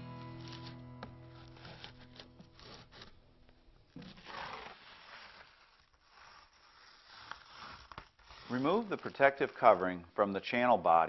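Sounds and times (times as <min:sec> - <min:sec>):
trowel scraping membrane: 0:00.3 - 0:03.2, 0:04.0 - 0:10.0.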